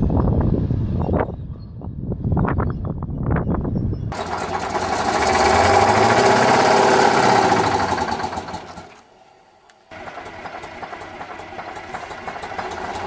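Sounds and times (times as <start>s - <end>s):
diesel engine clattering: 4.1s - 9.1s, 9.9s - 13.0s
distant tractor rumble: 4.1s - 13.0s.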